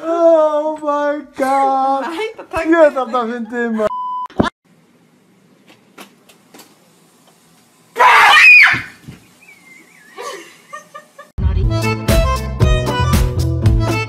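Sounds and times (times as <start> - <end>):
woman screaming in fright: 8.0 - 9.0.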